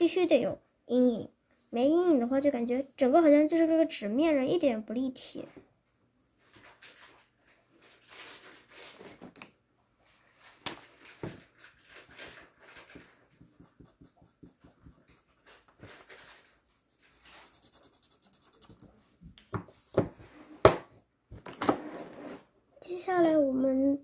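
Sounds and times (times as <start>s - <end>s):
marker scratching on paper: 13.3s - 19.0s.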